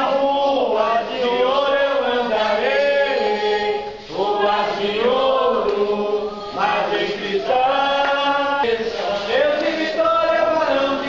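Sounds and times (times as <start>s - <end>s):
voices singing slow chant: 0.0s - 11.0s.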